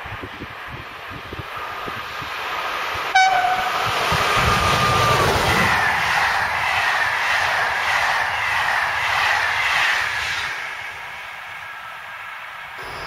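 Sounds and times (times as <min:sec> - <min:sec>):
train rushing past on rails: 0:00.0 - 0:13.0.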